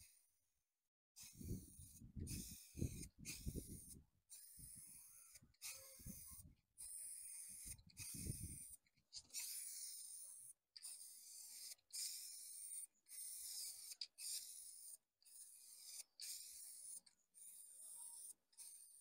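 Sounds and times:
spray paint can hissing: 0:01.2 - 0:18.9
wind rumble on microphone: 0:01.4 - 0:04.0, 0:08.1 - 0:08.6.

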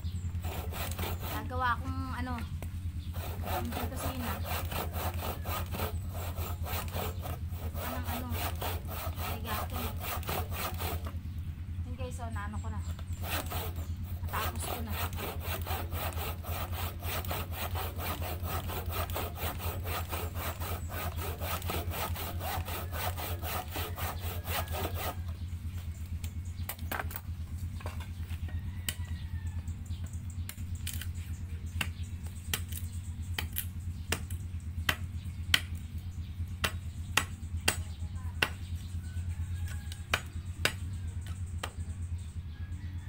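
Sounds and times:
handsaw cutting wood: 0:00.3 - 0:02.4, 0:03.0 - 0:11.2, 0:12.9 - 0:25.4.

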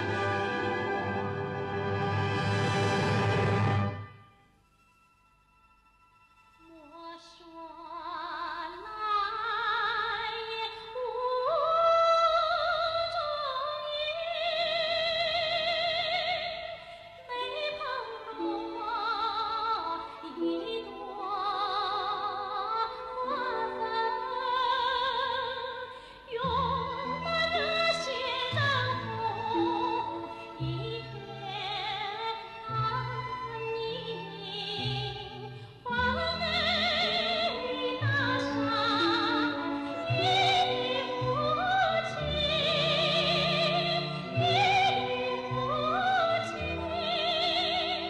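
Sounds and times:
orchestral accompaniment: 0:00.0 - 0:07.0
woman singing with vibrato: 0:06.7 - 0:48.0.

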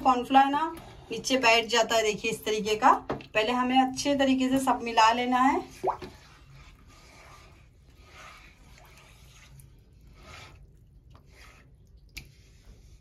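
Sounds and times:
spoon stirring liquid: 0:04.5 - 0:13.0.

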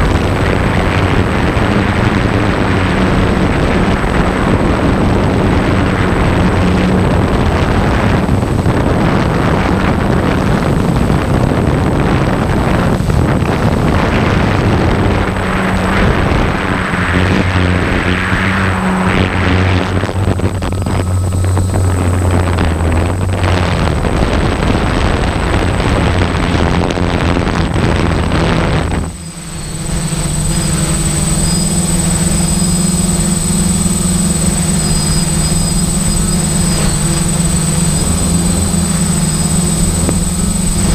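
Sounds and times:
engine running: 0:00.0 - 0:40.9
loud rushing noise: 0:00.0 - 0:40.9.

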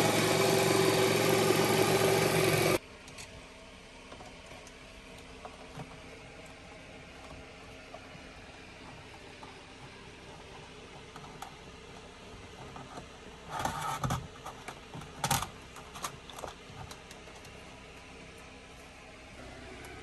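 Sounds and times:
scrape or rustle: 0:12.6 - 0:14.7.

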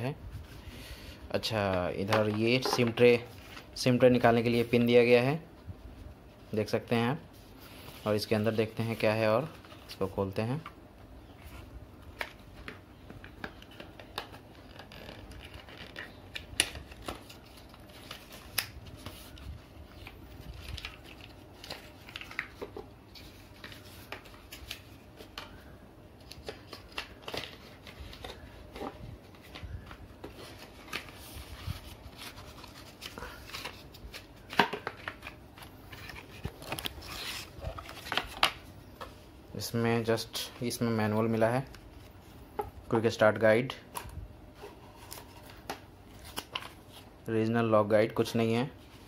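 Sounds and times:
paper and card rustling: 0:11.4 - 0:39.2, 0:40.0 - 0:47.2.

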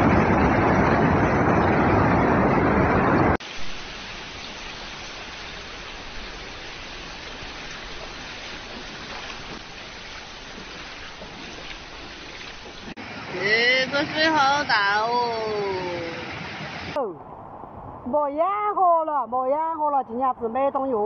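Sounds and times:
floodwater rushing: 0:00.0 - 0:18.1
water hissing: 0:03.4 - 0:17.0.

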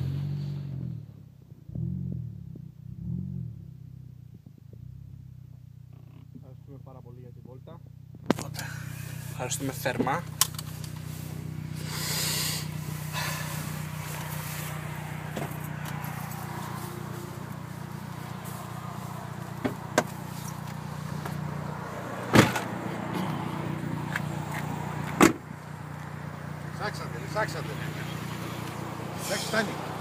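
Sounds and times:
car engine running: 0:00.0 - 0:30.0
loud thump: 0:22.3 - 0:22.7, 0:25.2 - 0:25.4.

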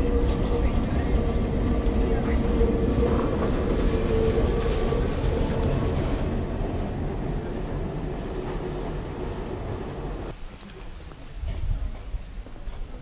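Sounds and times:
tram rolling on track: 0:00.0 - 0:10.3.

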